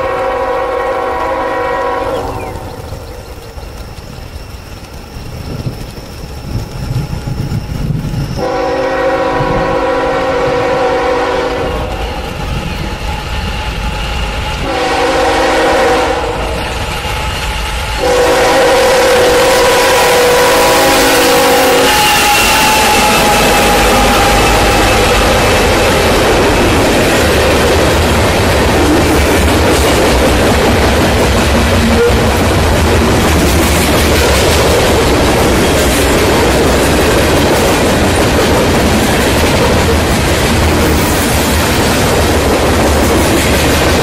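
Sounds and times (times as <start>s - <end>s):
locomotive air horn blasts: 0.0s - 2.4s, 8.4s - 12.1s, 14.6s - 16.6s, 18.0s - 25.8s, 31.9s - 32.4s
locomotive engine rumble: 0.0s - 44.0s
train wheels on rails: 0.0s - 44.0s.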